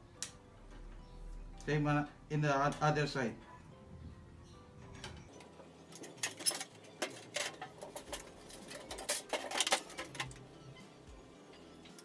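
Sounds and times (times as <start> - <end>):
faint background music: 0.0 - 12.0
metal cable tray clattering: 5.9 - 10.4.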